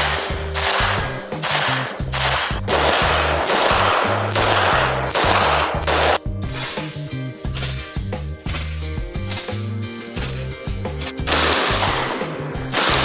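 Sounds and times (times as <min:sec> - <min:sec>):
rifle gunshots: 0:00.0 - 0:06.2, 0:11.3 - 0:13.0
background music with bass line: 0:00.0 - 0:13.0.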